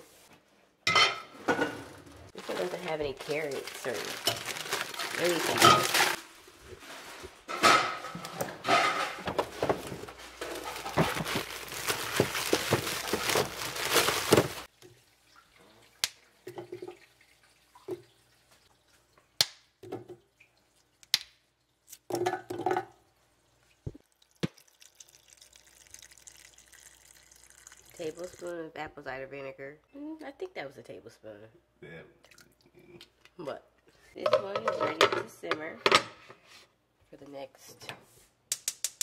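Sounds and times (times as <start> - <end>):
knocks of scraps in a pot: 7.5 - 14.7
tap running water into pot: 23.9 - 28.5.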